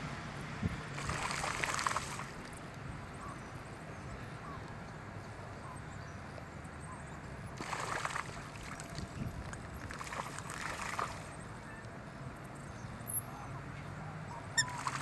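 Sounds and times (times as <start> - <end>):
steady outdoor hiss: 0.0 - 15.0
water splashing: 0.9 - 2.6, 7.6 - 11.4, 14.6 - 15.0.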